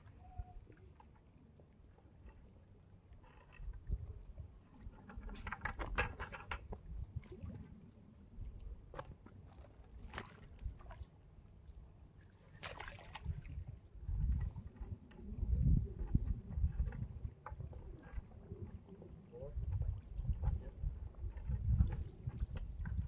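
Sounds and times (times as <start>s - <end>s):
wind buffeting microphone: 13.2s - 23.0s.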